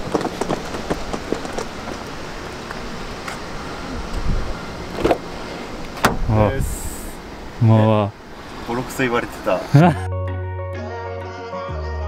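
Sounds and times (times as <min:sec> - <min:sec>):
background hiss: 0:00.0 - 0:10.0
soft thump: 0:06.0 - 0:06.3.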